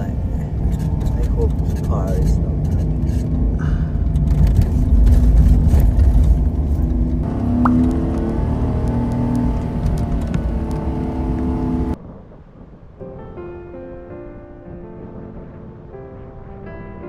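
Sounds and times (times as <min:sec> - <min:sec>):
van engine running: 0:00.0 - 0:12.0
road and tyre rumble: 0:00.0 - 0:13.0.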